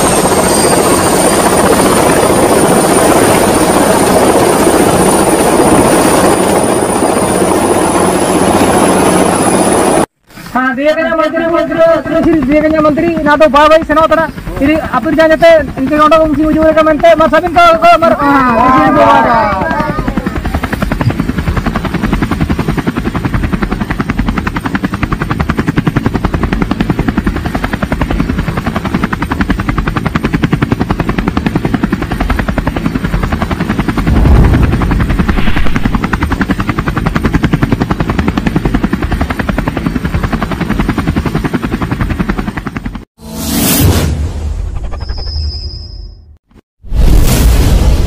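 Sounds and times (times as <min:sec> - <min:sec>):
helicopter rotor chopping: 0:00.0 - 0:10.1, 0:11.0 - 0:43.0.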